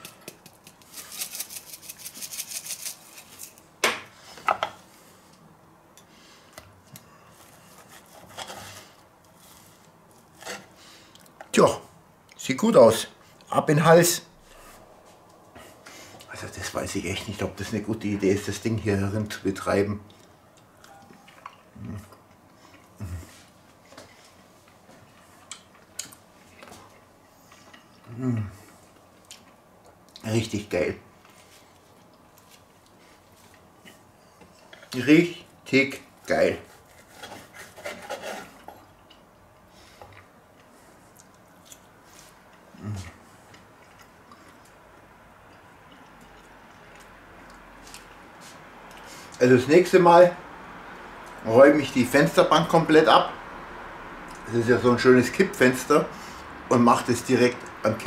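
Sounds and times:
knife and fork scraping: 0.0s - 3.6s, 36.7s - 38.8s
spice shaker rattling: 0.0s - 3.6s
man humming low: 28.1s - 28.6s, 42.8s - 43.2s.

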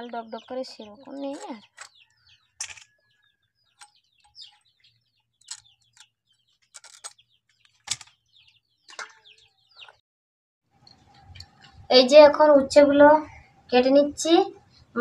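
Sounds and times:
small birds chirping: 0.0s - 10.0s, 10.7s - 15.0s
sharp knocks and scrapes: 2.6s - 3.0s, 5.5s - 8.2s.

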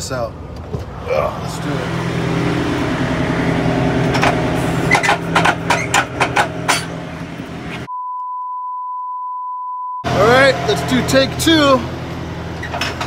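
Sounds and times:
diesel truck engine idling: 0.4s - 7.9s, 10.1s - 13.0s
sharp clicks and knocks: 4.1s - 7.0s
high-pitched test tone beep: 7.9s - 10.1s.

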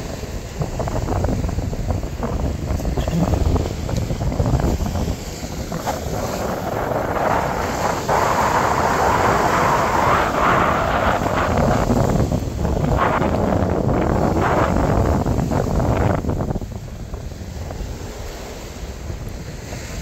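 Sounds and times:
sea wash: 0.0s - 20.0s
wind buffeting microphone: 0.0s - 20.0s.

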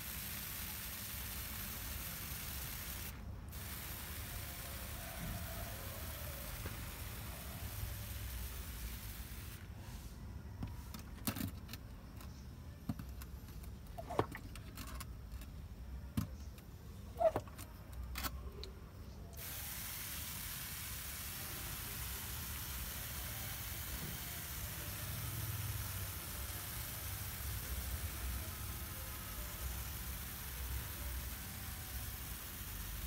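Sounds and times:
hose nozzle spraying water: 0.0s - 9.6s, 14.0s - 14.5s, 19.4s - 33.0s.

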